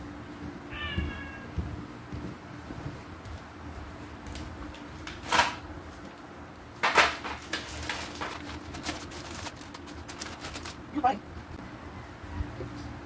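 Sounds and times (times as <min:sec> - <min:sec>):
plastic packets rustling: 0:06.8 - 0:11.2.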